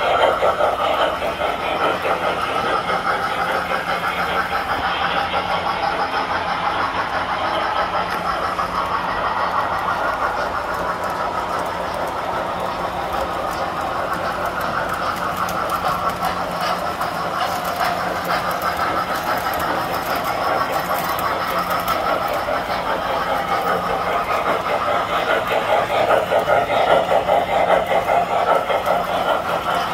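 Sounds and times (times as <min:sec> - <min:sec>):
clicking wheels: 0:00.0 - 0:29.9
toy train rolling on metal track: 0:00.0 - 0:29.9.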